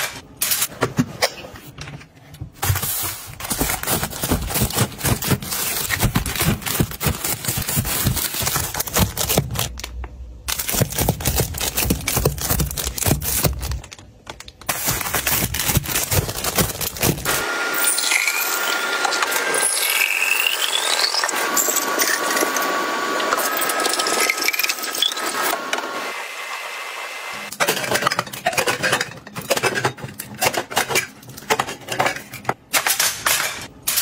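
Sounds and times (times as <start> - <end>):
plastic packs crinkling: 2.6 - 17.4.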